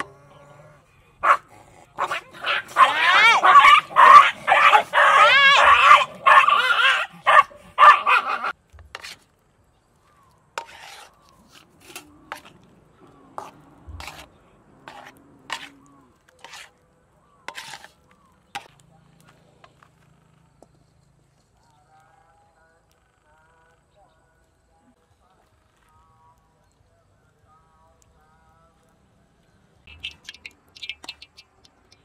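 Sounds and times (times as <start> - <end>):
dog yapping and whining: 2.0 - 8.5.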